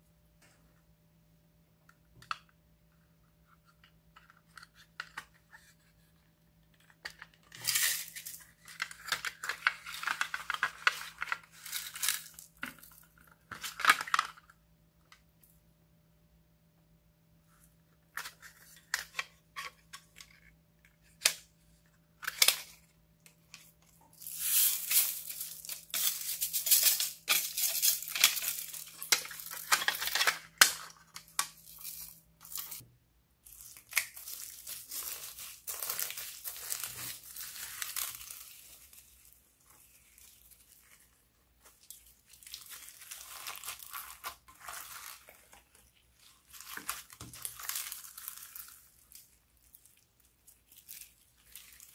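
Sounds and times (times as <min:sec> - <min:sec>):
slime crackling and crinkling: 0:33.4 - 0:51.9.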